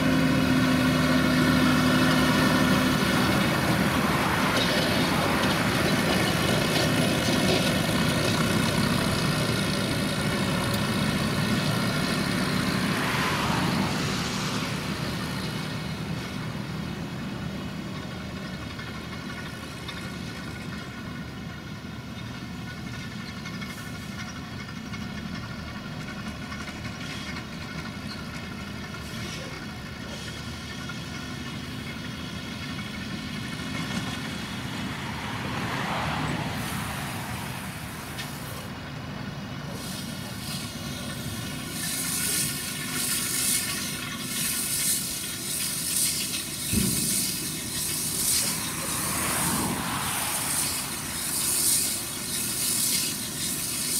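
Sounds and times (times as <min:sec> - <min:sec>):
tractor engines running: 0:00.0 - 0:53.9
baler and bale wrapper working: 0:39.4 - 0:53.9.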